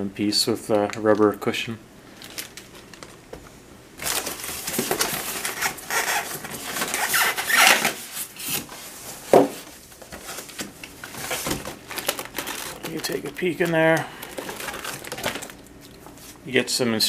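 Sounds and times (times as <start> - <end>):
cardboard scraping and rustling: 4.0 - 16.4.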